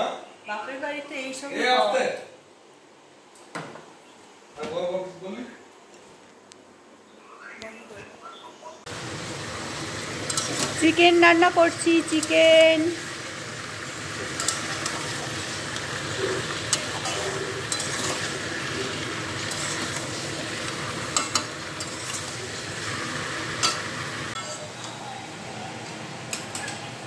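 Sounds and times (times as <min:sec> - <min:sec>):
chicken sizzling in a pan: 0:08.9 - 0:27.0
metal spatula clinking on pan: 0:16.7 - 0:18.2.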